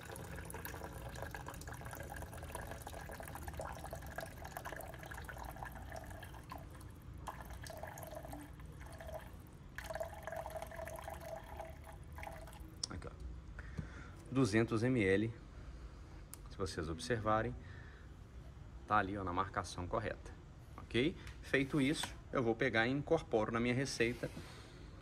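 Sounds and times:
liquid trickling into plastic cup: 0:00.0 - 0:12.8.

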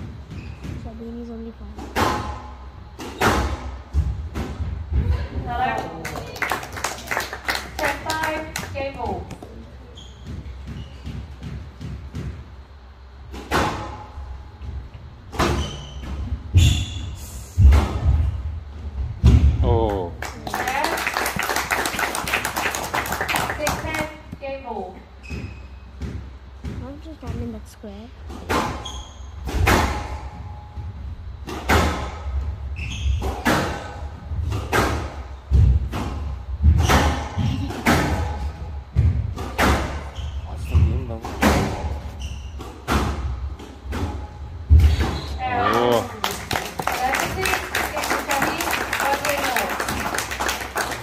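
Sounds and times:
squash ball hitting rackets and walls: 0:00.0 - 0:06.0, 0:07.7 - 0:19.7, 0:20.6 - 0:27.6, 0:28.2 - 0:50.8
shoe squeak: 0:00.3 - 0:00.8, 0:09.8 - 0:11.4, 0:15.4 - 0:17.3, 0:25.2 - 0:26.0, 0:28.7 - 0:29.5, 0:32.7 - 0:33.6, 0:39.9 - 0:41.2, 0:41.8 - 0:42.8, 0:44.8 - 0:45.6
racquet striking squash ball: 0:01.8 - 0:04.8, 0:13.3 - 0:14.4, 0:15.3 - 0:18.4, 0:28.3 - 0:30.5, 0:31.4 - 0:45.3.

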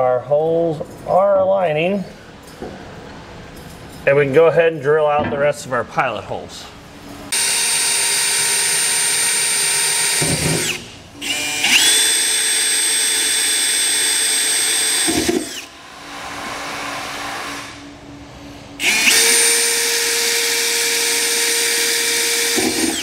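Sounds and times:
cordless drill whining: 0:07.3 - 0:15.8, 0:18.8 - 0:23.0.

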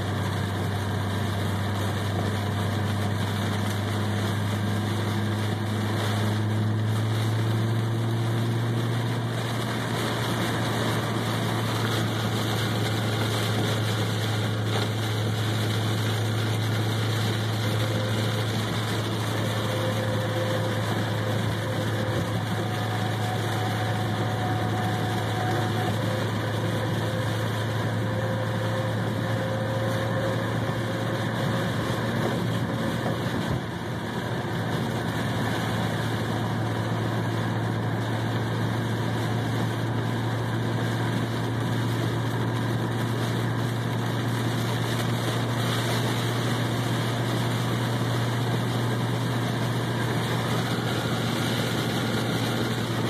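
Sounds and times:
engine and road noise drone: 0:00.0 - 0:53.0
rain and road spray hiss: 0:00.0 - 0:53.0.

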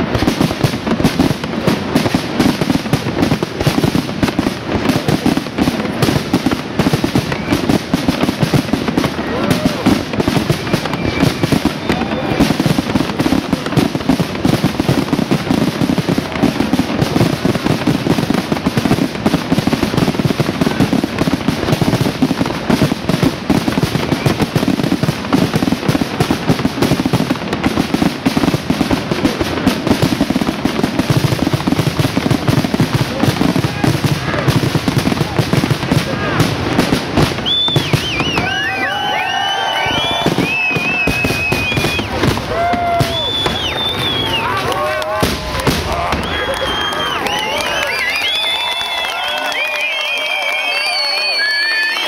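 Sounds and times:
fireworks bangs and crackles: 0:00.0 - 0:52.0.

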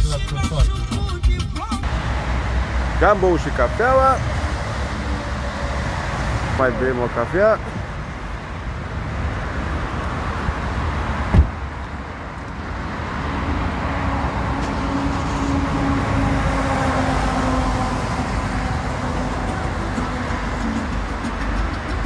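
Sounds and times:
car engine and road rumble: 0:00.0 - 0:22.0
engine hum: 0:01.8 - 0:22.0
sharp thump: 0:11.3 - 0:11.6.

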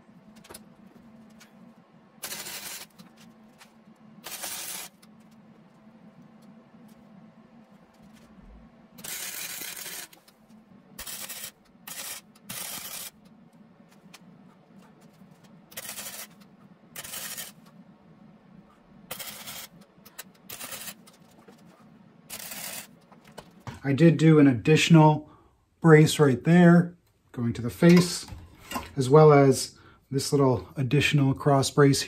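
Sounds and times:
welder low hum: 0:00.0 - 0:23.1
welding arc hiss and crackle: 0:02.2 - 0:05.3, 0:09.0 - 0:10.4, 0:11.0 - 0:14.1, 0:15.0 - 0:17.7, 0:19.1 - 0:23.1.

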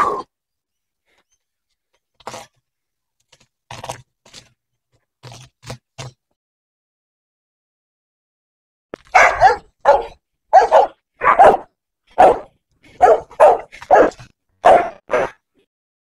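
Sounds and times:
dog barking: 0:09.1 - 0:15.4.

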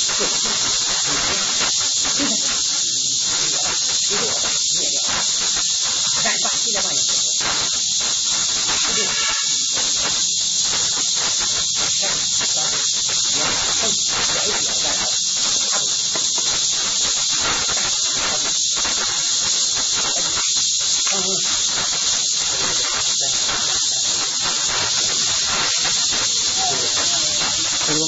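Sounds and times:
steady loud high hiss: 0:00.0 - 0:28.0.

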